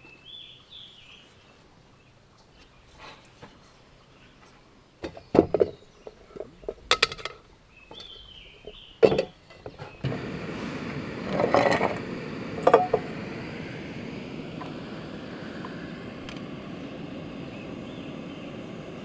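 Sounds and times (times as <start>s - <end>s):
camp gear clinking and knocking: 5.0s - 10.0s.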